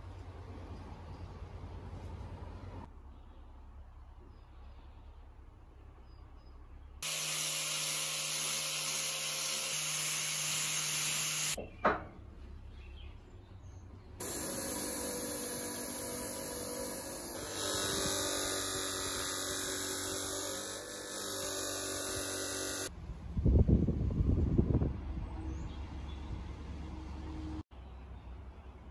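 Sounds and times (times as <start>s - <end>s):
angle grinder sanding steel: 7.0s - 11.6s, 14.2s - 22.9s
bench grinder buffing metal: 7.0s - 11.6s, 14.2s - 22.9s.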